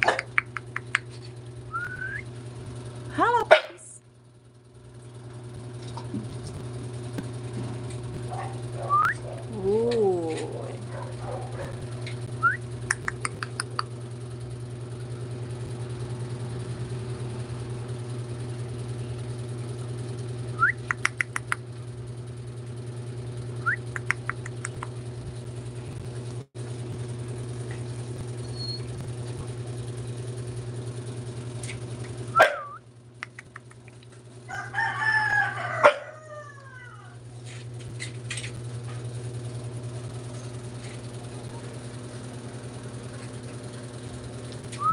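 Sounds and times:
steady low hum: 0.0 - 44.9
wavering animal call: 35.8 - 37.2.

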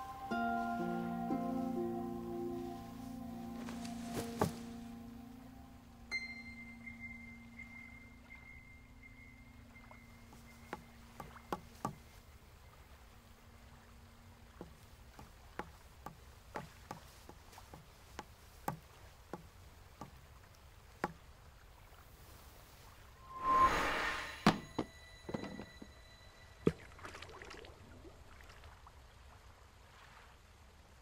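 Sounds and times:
faint low background: 0.0 - 31.0
footsteps on wooden planks: 3.6 - 4.8, 10.4 - 12.2, 14.6 - 20.2.

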